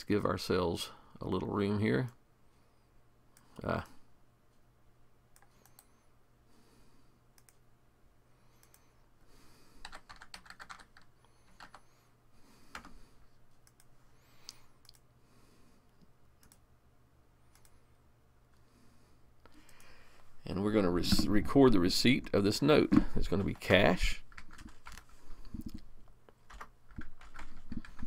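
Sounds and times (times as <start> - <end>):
low steady hum: 0.0 - 28.0
keyboard typing: 9.8 - 11.9, 12.7 - 13.0, 16.4 - 16.6, 23.3 - 25.8, 26.4 - 28.0.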